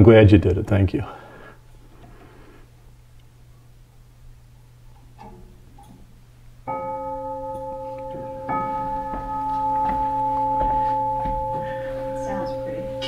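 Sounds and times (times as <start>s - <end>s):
chime clock tubes ringing: 6.7s - 13.0s
handling noise: 7.8s - 12.0s.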